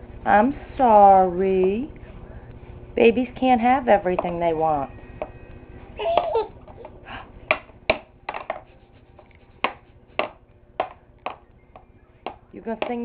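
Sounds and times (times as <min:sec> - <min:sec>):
hand slapping plastic tray: 0:09.6 - 0:13.0.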